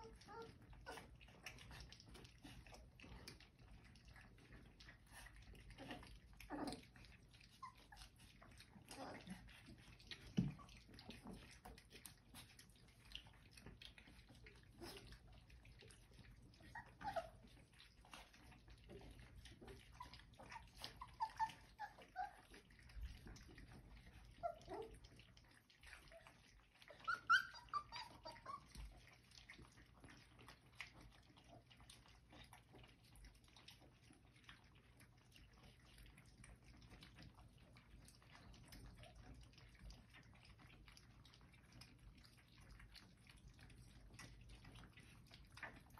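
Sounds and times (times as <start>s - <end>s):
puppy squeaks and whimpers: 0.0s - 1.9s, 5.8s - 11.4s, 14.8s - 19.0s, 19.6s - 23.2s, 24.0s - 25.1s, 25.8s - 29.1s
puppies licking and lapping: 0.0s - 45.9s.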